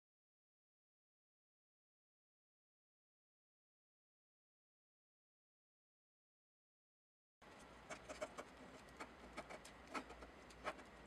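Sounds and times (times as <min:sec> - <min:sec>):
pen scratching on paper: 0:07.6 - 0:11.0.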